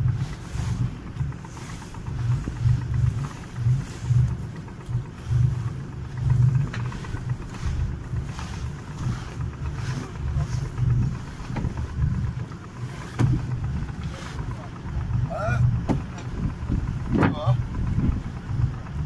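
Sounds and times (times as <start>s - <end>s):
canvas sail flapping: 0.0s - 18.9s
wind buffeting the microphone: 15.1s - 19.0s.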